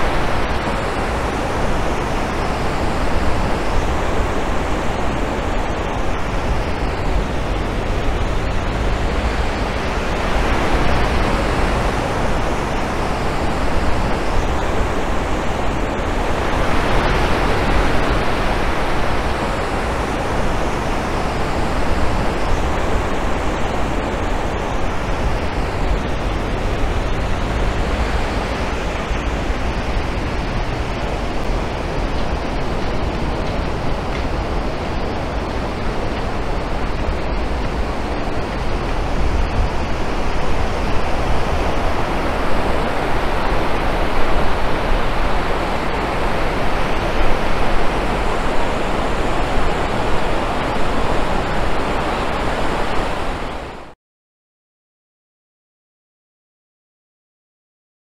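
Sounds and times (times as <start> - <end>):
surf breaking on beach: 0.0 - 54.0.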